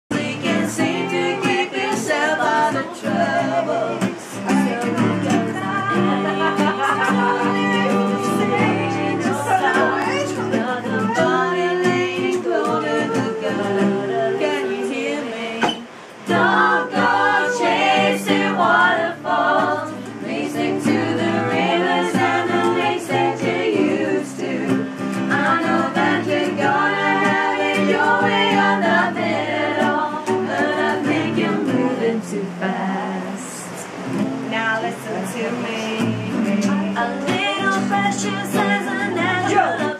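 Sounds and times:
acoustic guitar strumming: 0:00.1 - 0:39.9
woman singing: 0:00.1 - 0:39.9.

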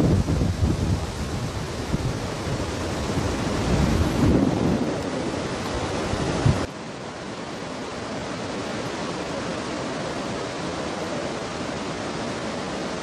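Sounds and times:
wind buffeting microphone: 0:00.0 - 0:06.7
mountain river rushing: 0:00.0 - 0:13.0.

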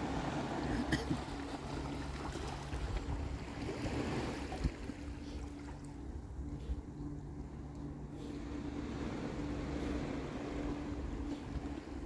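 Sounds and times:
small waves lapping on rocks: 0:00.0 - 0:06.0
faint low hum: 0:00.0 - 0:12.0.

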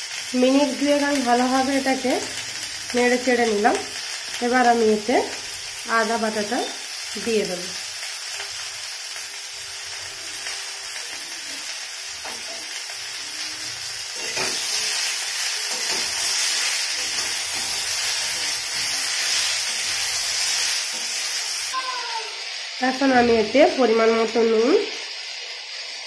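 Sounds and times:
vegetables sizzling in oil: 0:00.0 - 0:26.0
metal spatula stirring: 0:14.1 - 0:21.4.

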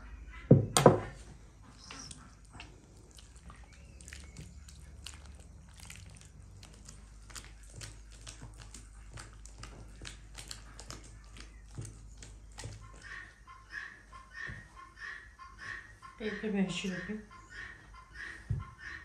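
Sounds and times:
hand kneading wet dough: 0:01.6 - 0:13.5.

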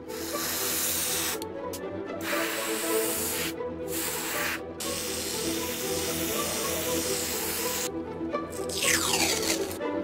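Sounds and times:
airbrush spraying hiss: 0:00.0 - 0:01.4, 0:02.2 - 0:07.9
background music: 0:00.0 - 0:10.0.

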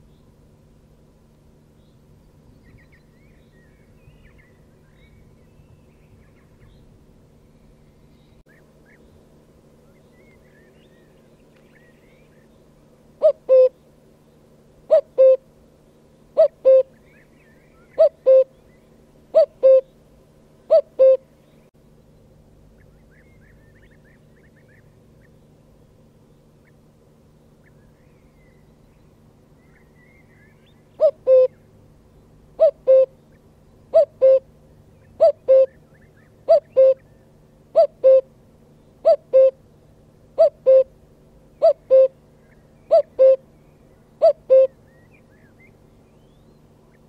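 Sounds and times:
cuckoo calling: 0:13.2 - 0:13.8, 0:14.9 - 0:15.5, 0:16.4 - 0:20.0, 0:20.7 - 0:21.4, 0:29.6 - 0:31.7, 0:32.6 - 0:38.4, 0:39.0 - 0:39.7, 0:40.4 - 0:47.0.

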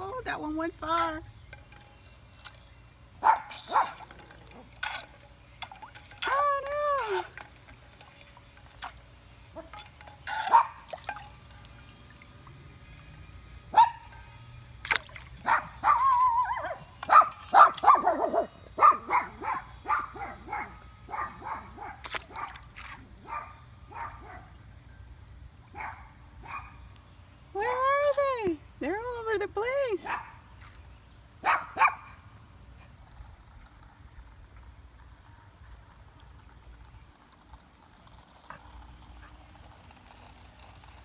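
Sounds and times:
dog barking: 0:13.8 - 0:14.0, 0:15.4 - 0:22.0, 0:23.2 - 0:24.5, 0:25.8 - 0:26.7, 0:31.4 - 0:32.2
dog whining: 0:15.5 - 0:16.9.

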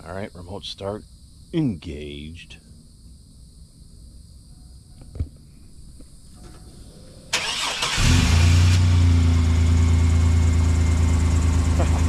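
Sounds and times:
car engine idling: 0:06.4 - 0:12.0
starter motor cranking: 0:07.3 - 0:09.0.

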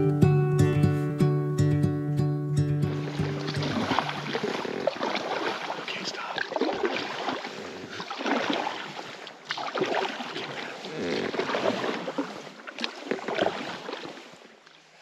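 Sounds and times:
water splashing around a raft: 0:02.8 - 0:15.0.

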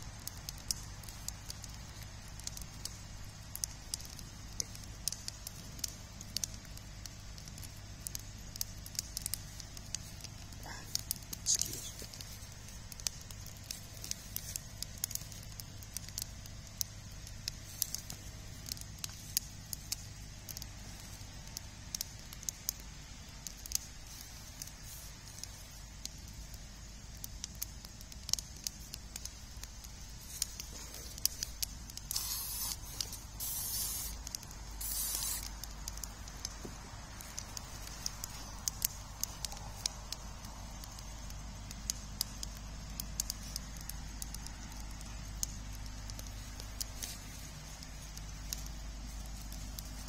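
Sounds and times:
campfire crackling and hissing: 0:00.0 - 0:50.0
short bursts of hissing: 0:32.1 - 0:34.2, 0:34.8 - 0:35.5.

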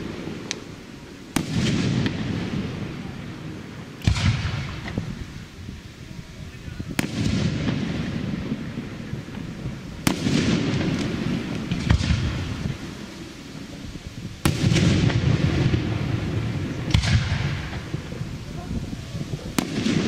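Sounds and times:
firework shells bursting: 0:00.0 - 0:05.6, 0:06.8 - 0:13.8, 0:14.4 - 0:20.0
rumbling echo: 0:14.4 - 0:20.0.

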